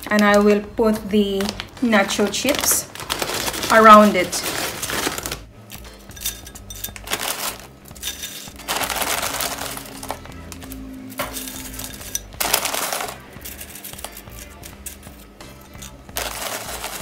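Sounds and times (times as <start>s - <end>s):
chip bag crinkling: 1.2s - 5.5s, 6.8s - 15.1s, 16.1s - 17.0s
chips clinking on ceramic plate: 6.0s - 17.0s.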